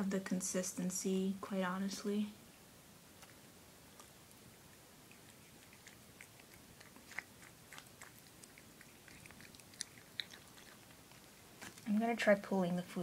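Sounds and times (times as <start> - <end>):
cat chewing food: 3.0 - 12.0.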